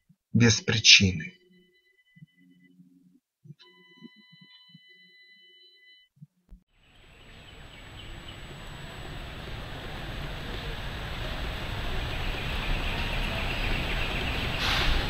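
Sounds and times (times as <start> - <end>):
faint high hum: 6.8 - 14.6.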